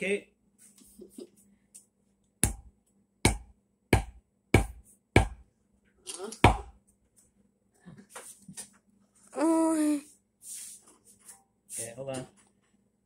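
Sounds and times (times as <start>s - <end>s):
hatchet chopping into wood: 2.4s - 5.4s, 6.4s - 6.7s.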